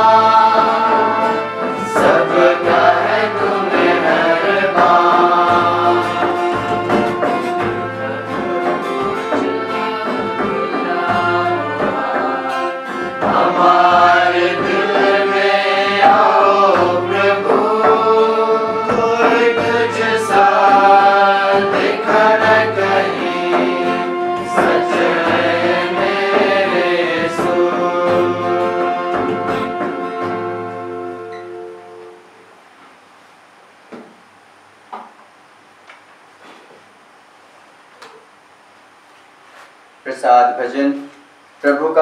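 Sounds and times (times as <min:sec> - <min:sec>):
voices singing a hymn: 0:00.0 - 0:32.0
instrumental accompaniment: 0:00.0 - 0:32.5.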